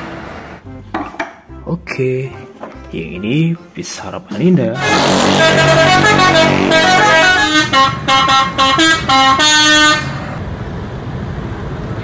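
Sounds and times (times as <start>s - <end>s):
musical bus air horn: 4.8s - 10.4s.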